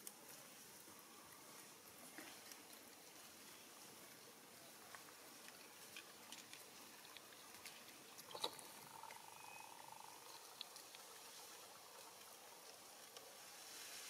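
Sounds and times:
faint brief tone: 0:09.2 - 0:09.9.

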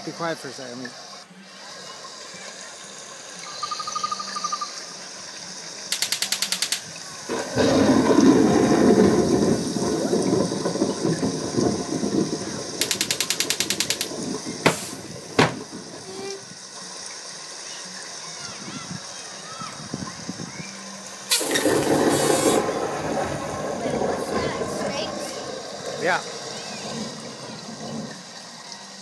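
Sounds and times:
loud hiss: 0:04.2 - 0:29.0
fast rattling: 0:05.9 - 0:16.0, 0:21.3 - 0:28.4
sharp knocks: 0:12.8 - 0:15.7.

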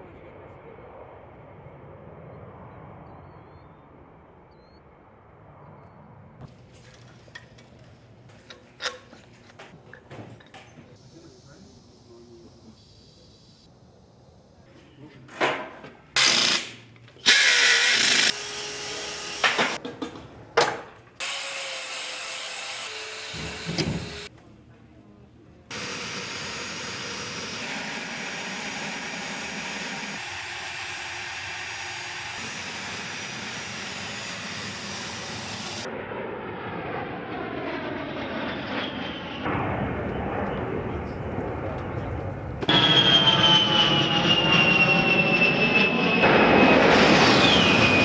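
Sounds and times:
jet flying overhead: 0:00.0 - 0:07.4, 0:25.7 - 0:48.0
jet engine bursts and hisses: 0:25.7 - 0:35.9, 0:42.6 - 0:48.0
jet engines roaring: 0:25.7 - 0:48.0.

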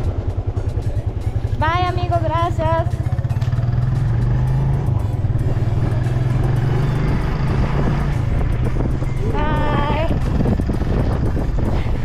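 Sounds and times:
motorcycle engine running: 0:00.0 - 0:12.0
wind on microphone: 0:04.9 - 0:12.0.

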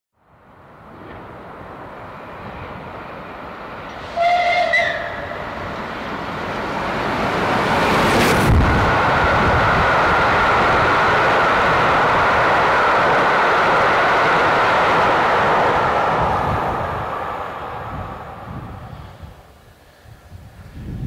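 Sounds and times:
two-note steam whistle: 0:04.0 - 0:05.4.

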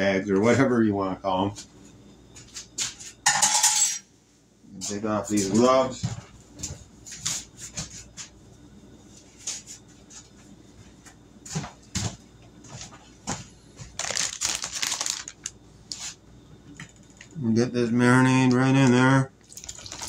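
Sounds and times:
plastic bag crinkling: 0:13.9 - 0:16.2, 0:19.5 - 0:20.0.

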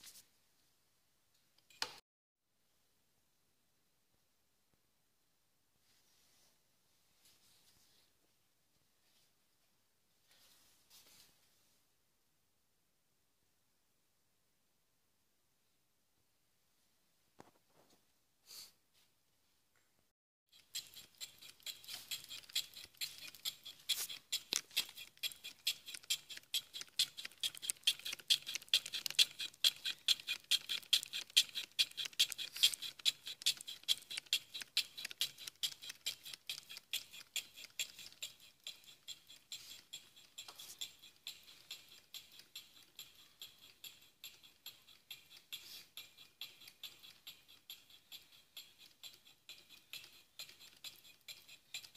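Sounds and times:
cutting tool scraping metal: 0:20.5 - 0:51.9.

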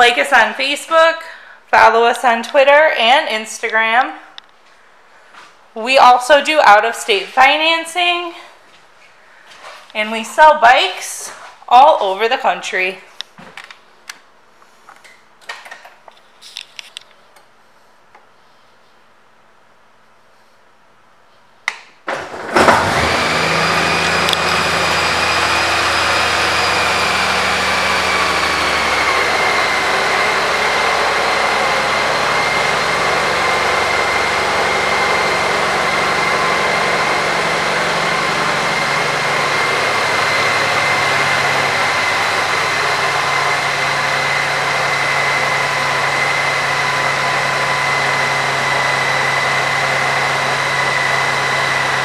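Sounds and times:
motorcycle engine starting and idling: 0:22.1 - 0:52.0.

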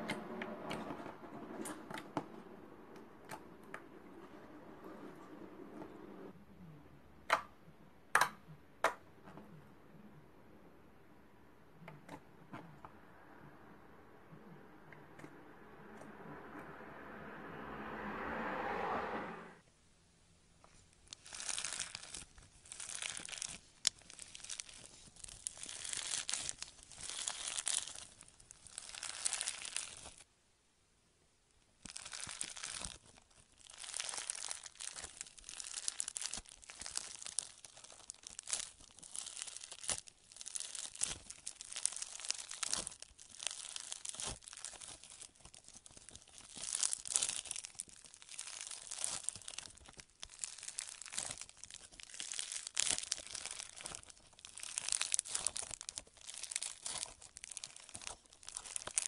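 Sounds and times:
foam-bead slime crackling: 0:20.7 - 0:30.3, 0:31.8 - 0:59.0.

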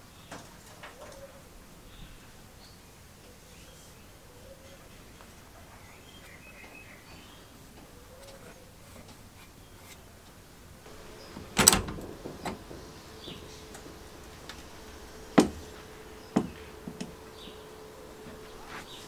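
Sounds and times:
sharp metal knocks: 0:10.9 - 0:18.2
metal door latch clacking: 0:10.9 - 0:18.6.

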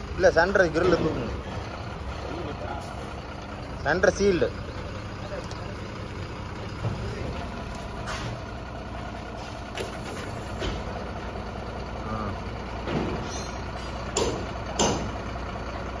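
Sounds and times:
diesel engine idling: 0:00.0 - 0:16.0
sharp knocks: 0:12.8 - 0:15.2.

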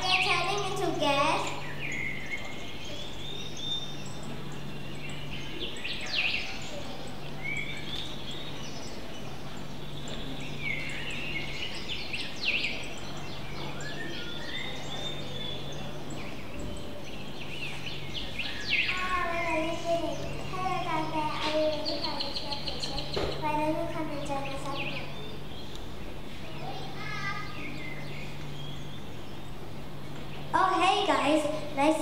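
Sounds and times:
birds chirping: 0:00.0 - 0:32.0
steady background hiss: 0:00.0 - 0:32.0.

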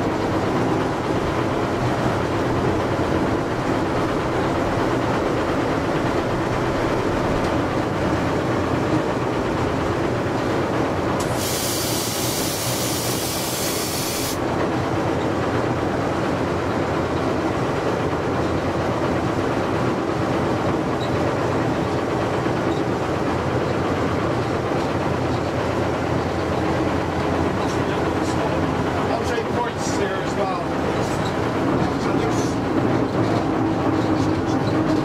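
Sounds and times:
diesel locomotive engine drone: 0:00.0 - 0:35.0
wheel and rail noise: 0:00.0 - 0:35.0
sharp hiss of air: 0:11.2 - 0:14.4.

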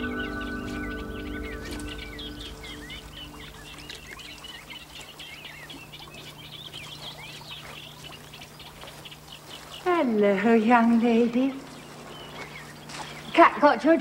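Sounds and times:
held musical chord: 0:00.0 - 0:04.1
small birds chirping: 0:00.0 - 0:14.0.

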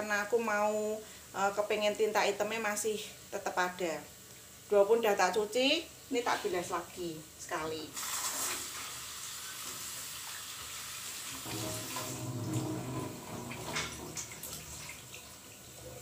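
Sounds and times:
running water splashing: 0:07.9 - 0:16.0.

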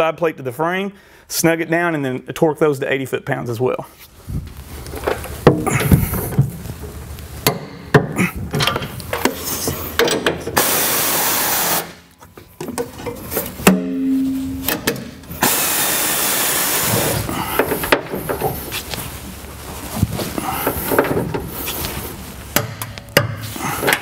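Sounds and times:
steady mechanical noise: 0:04.4 - 0:12.1, 0:14.7 - 0:24.0.

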